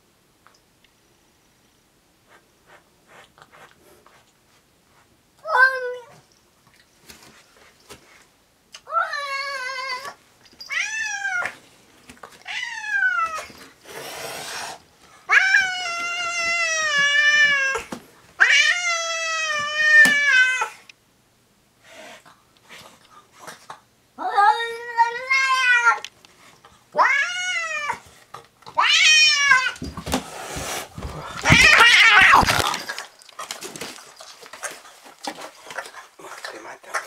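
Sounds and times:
cat hissing: 13.8s - 14.8s
cat yowling: 31.4s - 32.6s.

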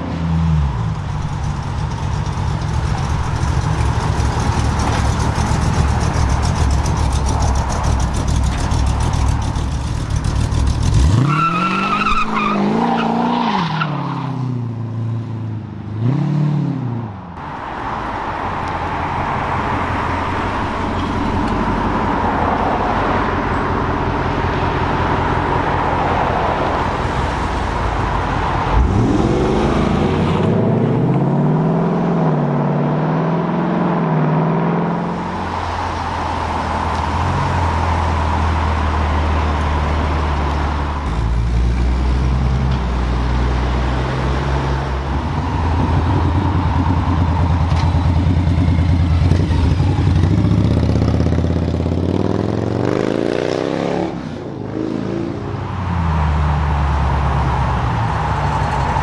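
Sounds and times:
car engines revving: 0.0s - 59.0s.

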